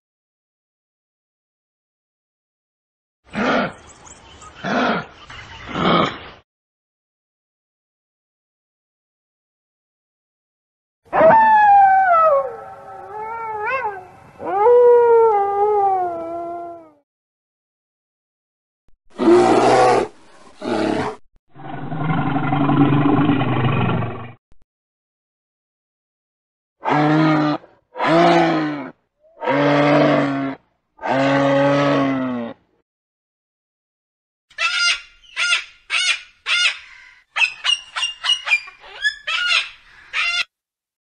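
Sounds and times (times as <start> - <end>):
bear roaring: 19.2 - 24.4, 26.9 - 32.6
loud rough growls: 19.2 - 24.4
cockatoo harsh calls: 34.5 - 40.5.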